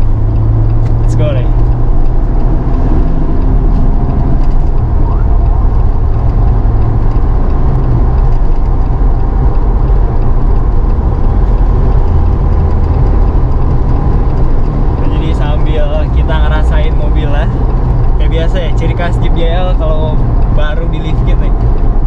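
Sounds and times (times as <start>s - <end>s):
car engine and road noise: 0.0s - 22.0s
deep low rumble: 0.0s - 22.0s.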